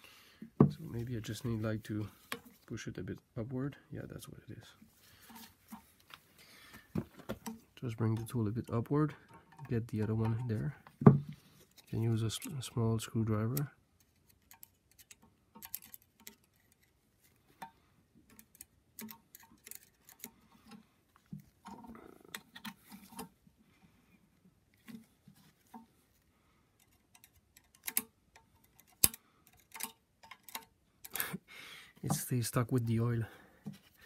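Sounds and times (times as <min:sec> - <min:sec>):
screwdriver ticking and scraping metal: 0:13.5 - 0:17.0, 0:18.3 - 0:20.8, 0:26.8 - 0:31.2.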